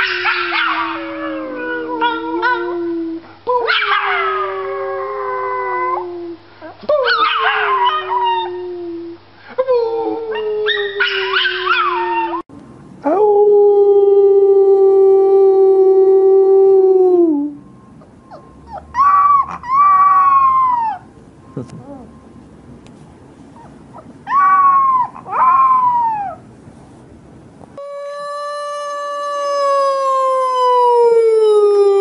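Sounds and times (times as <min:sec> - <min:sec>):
higher puppy howl: 0:00.0 - 0:06.1, 0:10.0 - 0:12.4, 0:18.3 - 0:21.1, 0:24.2 - 0:26.4
puppy howling: 0:00.0 - 0:06.2, 0:06.9 - 0:08.7, 0:09.9 - 0:12.5, 0:18.0 - 0:21.1, 0:23.6 - 0:26.4, 0:28.1 - 0:32.0.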